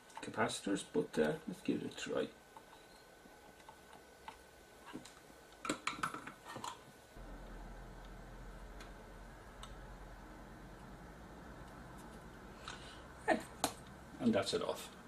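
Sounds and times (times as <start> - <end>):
faint low hum: 7.1 - 15.0.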